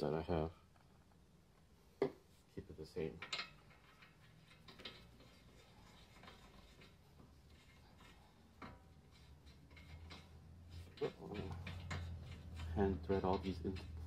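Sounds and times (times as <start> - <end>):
faint metal clicks and scrapes: 3.0 - 14.0.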